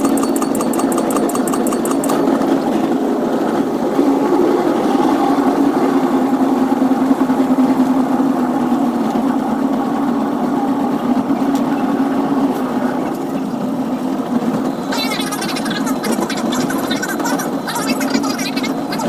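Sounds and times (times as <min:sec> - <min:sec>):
train running hum: 0:00.0 - 0:19.0
rapid high-pitched chatter: 0:14.8 - 0:19.0.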